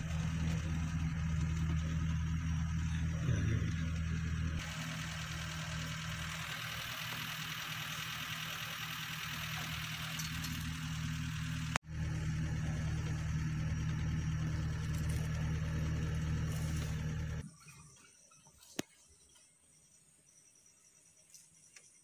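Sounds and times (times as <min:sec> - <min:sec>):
jeep engine idling: 0:00.0 - 0:17.4.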